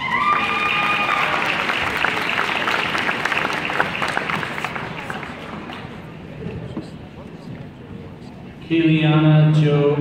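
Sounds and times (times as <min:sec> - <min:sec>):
audience applause: 0:00.0 - 0:06.0.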